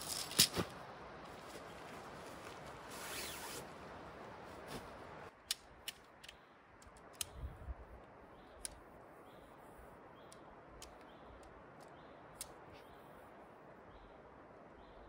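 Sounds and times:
tent fabric rustling: 0.0s - 5.3s
tent pole sections clicking: 5.3s - 8.9s, 10.2s - 12.8s.

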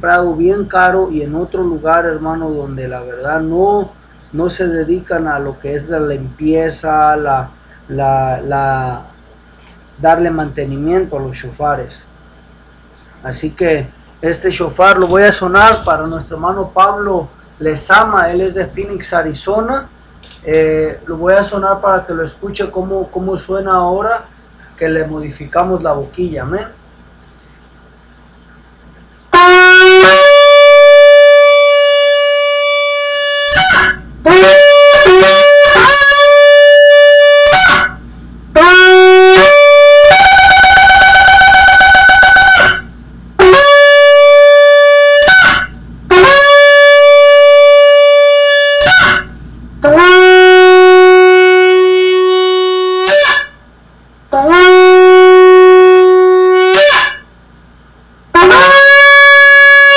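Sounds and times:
shofar blasts: 14.2s - 19.8s, 29.3s - 53.6s, 54.3s - 57.4s, 58.3s - 59.9s.

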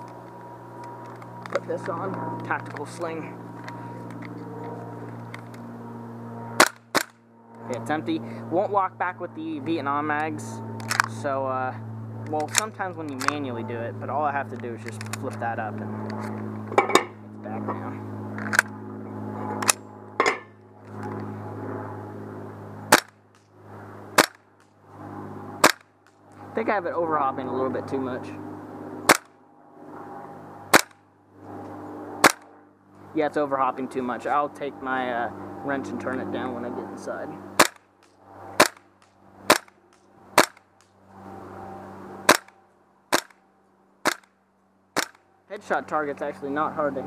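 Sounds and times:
airsoft rifle shots: 6.6s - 7.2s, 22.9s - 23.2s, 24.2s - 24.4s, 25.6s - 25.9s, 29.1s - 29.3s, 30.7s - 31.0s, 32.2s - 32.5s, 37.6s - 37.8s, 38.6s - 38.9s, 39.5s - 39.8s, 40.4s - 40.7s, 42.3s - 42.5s, 43.1s - 43.4s, 44.0s - 44.3s, 45.0s - 45.2s.

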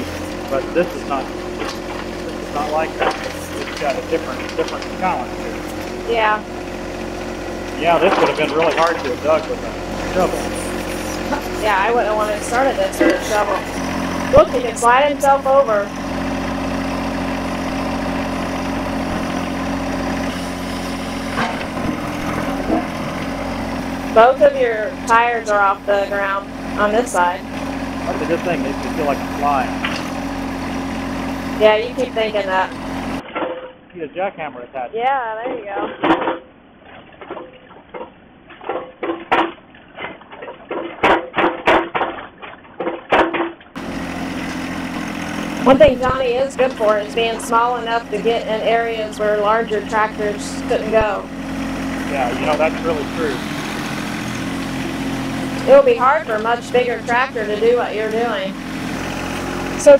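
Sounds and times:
hydraulics clunk: 0.0s - 6.4s, 7.3s - 33.8s, 35.6s - 59.9s
tractor diesel engine running: 0.0s - 33.2s, 43.8s - 59.9s
backhoe bucket knocks and clanks: 37.3s - 43.6s.

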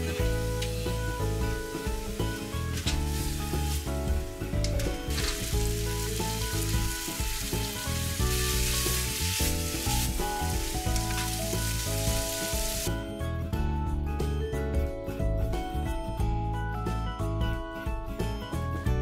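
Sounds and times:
food sizzling in a frying pan: 0.0s - 12.9s
background music: 0.0s - 19.0s.

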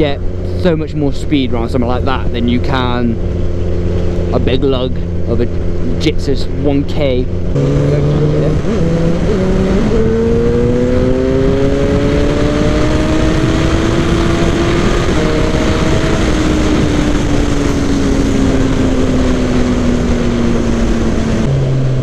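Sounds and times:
wind noise: 7.4s - 22.0s.

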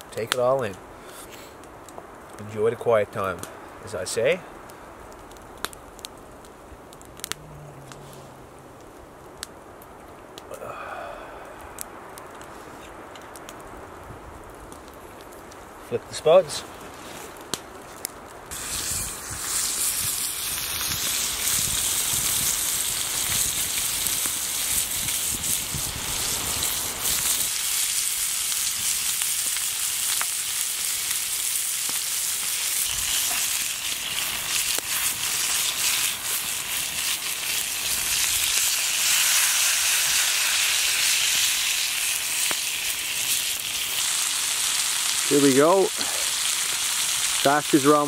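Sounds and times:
food sizzling in a skillet: 18.5s - 48.0s.

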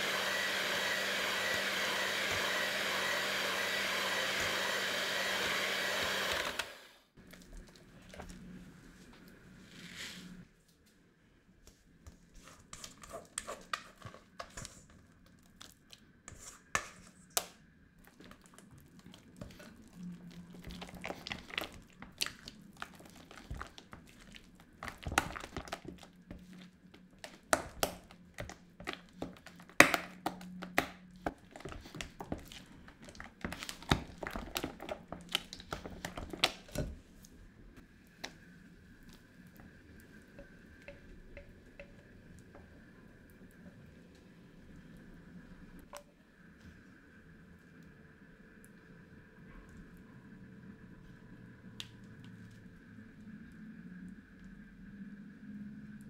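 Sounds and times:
cream squelching: 0.0s - 10.5s, 18.0s - 40.3s.

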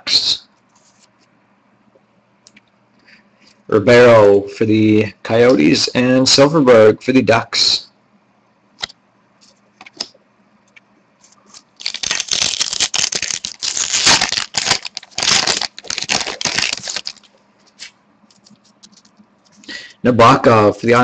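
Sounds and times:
foil wrapper crackling: 11.5s - 19.1s.

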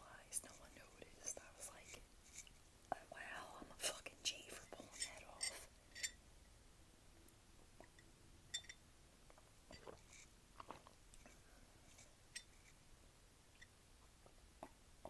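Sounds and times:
spoon clinking against mug: 8.5s - 8.8s
sipping from a mug: 9.7s - 12.8s.

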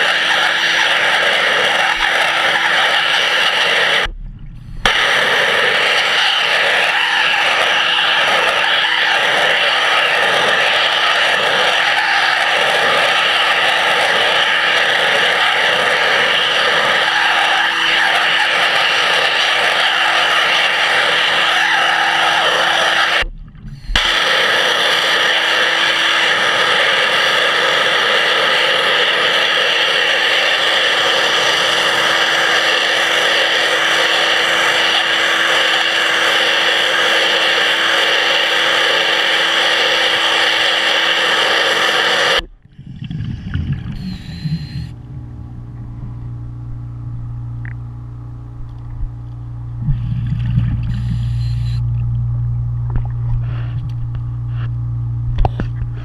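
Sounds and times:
pressure washer spraying underwater: 0.0s - 45.0s, 48.9s - 52.0s
low steady hum: 4.0s - 6.0s, 23.2s - 24.1s, 42.4s - 56.0s
short bursts of noise: 38.0s - 45.0s, 49.8s - 52.0s.

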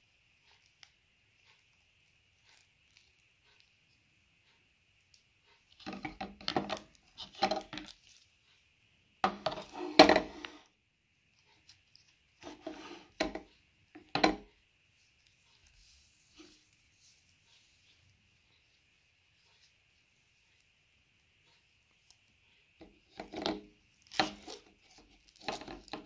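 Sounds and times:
plastic tool clicks and knocks: 5.8s - 7.9s, 13.2s - 14.5s.

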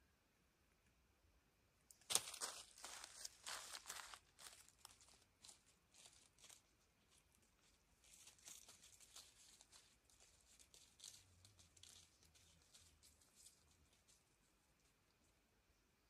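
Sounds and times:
faint crackling and ticking: 1.9s - 15.4s.

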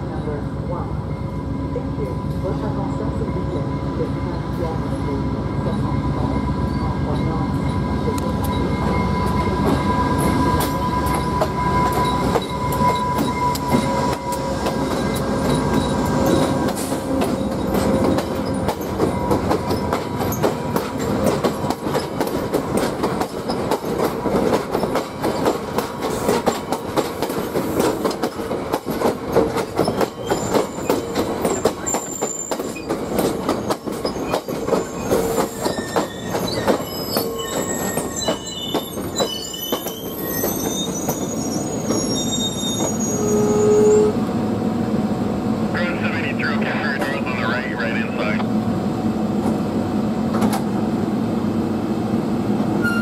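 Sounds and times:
diesel locomotive engine drone: 0.0s - 24.6s, 43.1s - 53.0s
train brake squeal: 8.4s - 17.0s, 29.8s - 33.0s, 34.0s - 44.2s, 52.8s - 53.0s
train wheels clacking on rail joints: 9.2s - 41.3s.

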